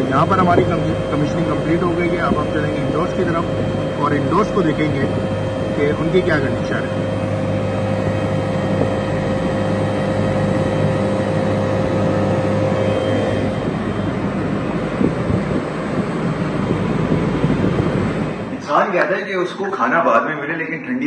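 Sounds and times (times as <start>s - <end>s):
high-pitched tone: 0.0s - 16.0s
air conditioner mechanical hum: 0.0s - 21.0s.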